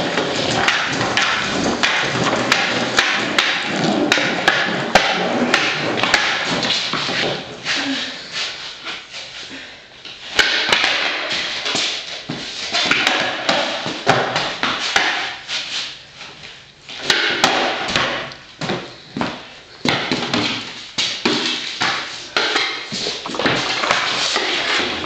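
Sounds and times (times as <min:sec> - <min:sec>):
skateboard deck clacking on concrete: 0:00.0 - 0:06.7
skateboard wheels grinding on concrete: 0:00.0 - 0:07.8, 0:22.7 - 0:25.0.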